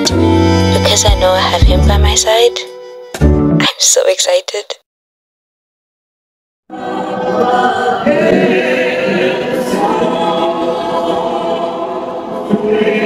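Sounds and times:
choir singing a cappella: 6.7 - 13.0.

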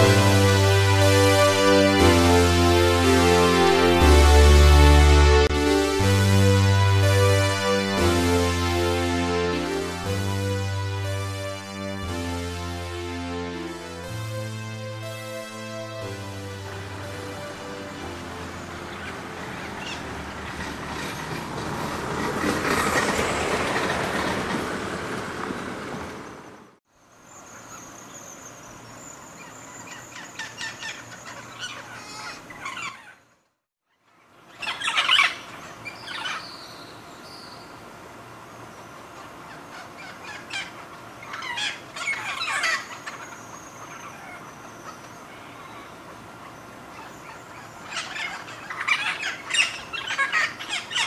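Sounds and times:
parrots squawking: 30.2 - 33.2, 34.6 - 36.5, 39.5 - 45.9, 47.0 - 51.0.

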